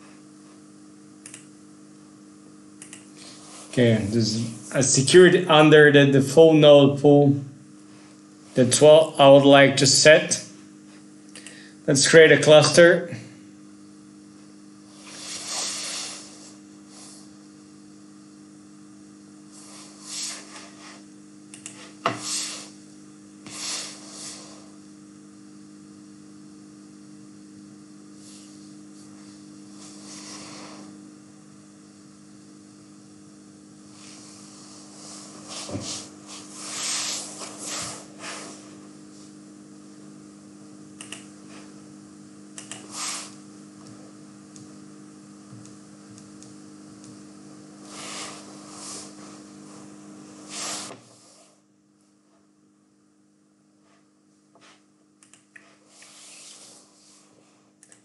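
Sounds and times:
low electrical hum: 0.0s - 58.0s
small clicks: 2.8s - 3.1s, 41.0s - 41.3s, 42.6s - 42.9s, 55.2s - 55.7s.

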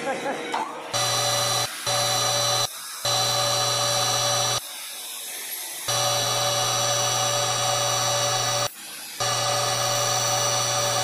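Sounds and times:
angle grinder whining: 1.0s - 4.6s, 5.9s - 11.0s.

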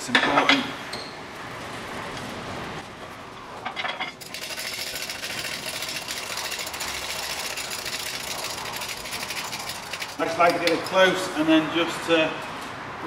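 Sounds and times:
hydraulic press rattling: 3.7s - 11.0s.

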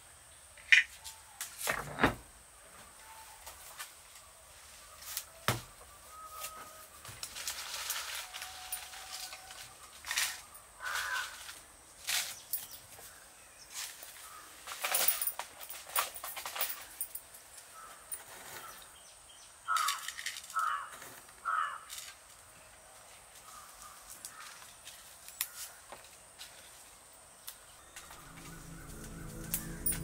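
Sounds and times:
crow cawing: 10.8s - 11.4s, 19.7s - 21.9s, 23.5s - 24.6s.

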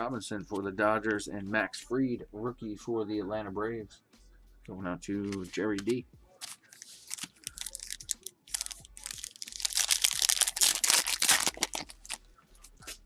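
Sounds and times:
foil wrapper crinkling and tearing: 6.4s - 12.2s.

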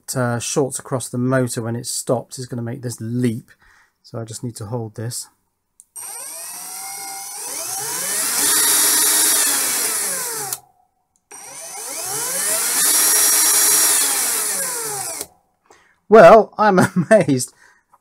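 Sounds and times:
drill motor whining: 6.0s - 10.6s, 11.3s - 15.3s.

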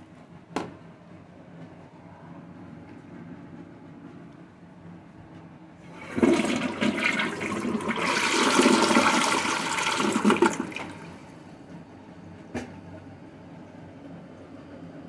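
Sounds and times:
toilet flushing: 5.8s - 11.6s.

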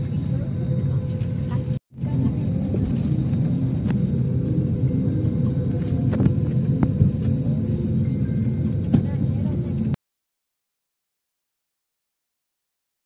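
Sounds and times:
airliner engines rumbling: 0.0s - 10.0s.

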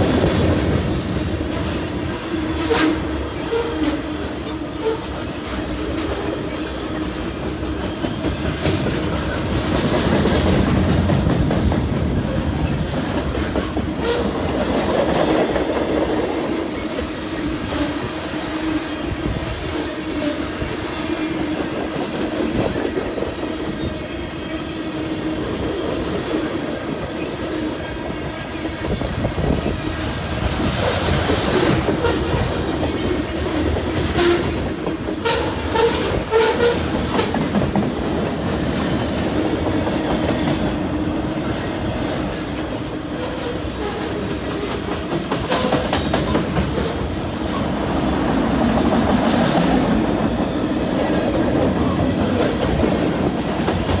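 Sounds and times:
wheels clicking over rail joints: 0.0s - 17.2s, 41.9s - 54.0s
train wheels rumbling on rails: 0.0s - 54.0s.

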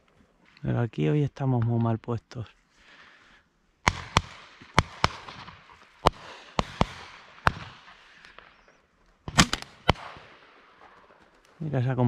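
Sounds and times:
shotgun firing: 3.8s - 8.5s, 9.3s - 11.0s.

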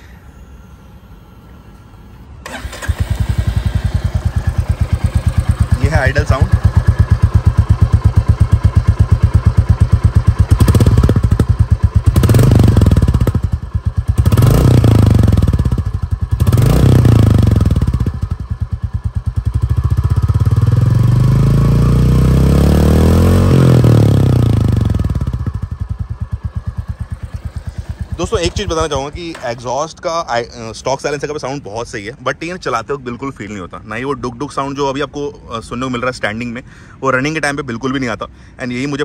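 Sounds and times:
motorcycle engine idling and revving: 2.0s - 32.0s.

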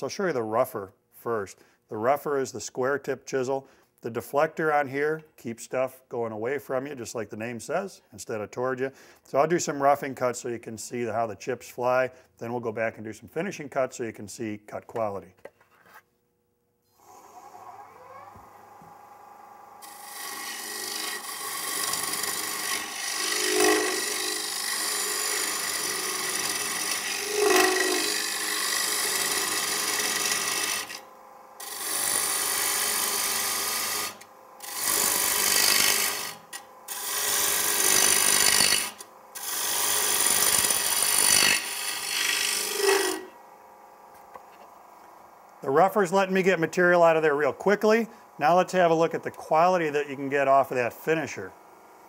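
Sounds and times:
lathe tool cutting wood: 19.8s - 31.0s, 31.6s - 43.4s.

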